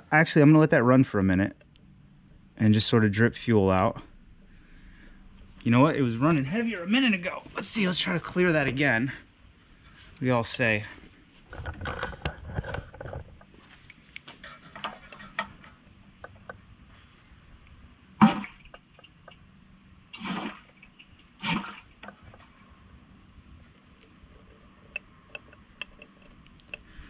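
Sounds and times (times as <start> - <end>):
fuel gurgling and splashing into jar: 20.1 - 22.0
metal pick clicking: 24.9 - 26.9.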